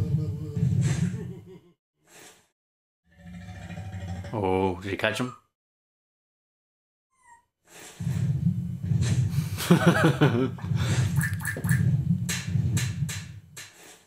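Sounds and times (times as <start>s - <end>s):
low rumble: 8.0s - 13.6s.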